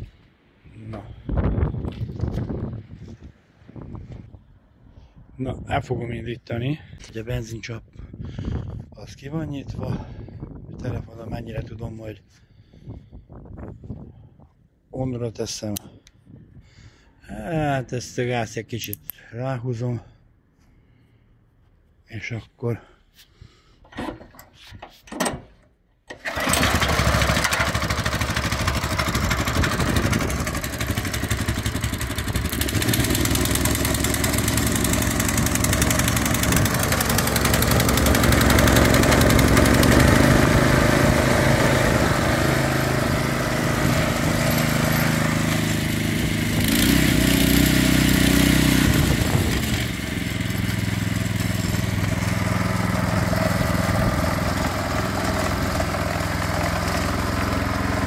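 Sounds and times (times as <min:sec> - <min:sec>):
tiller engine running: 0:26.1 - 0:58.0.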